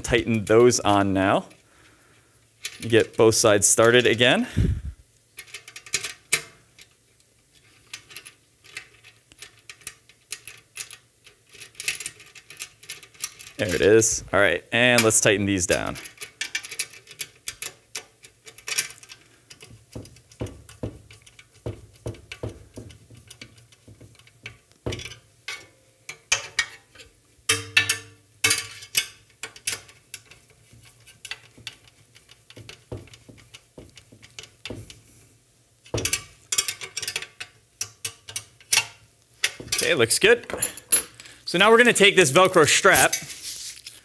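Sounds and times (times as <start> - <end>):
small metallic clicks and taps: 35.8 - 39.9.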